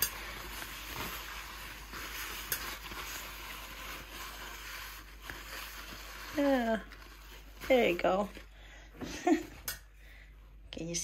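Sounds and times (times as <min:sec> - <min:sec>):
paper towel scrubbing metal: 0:00.0 - 0:08.4.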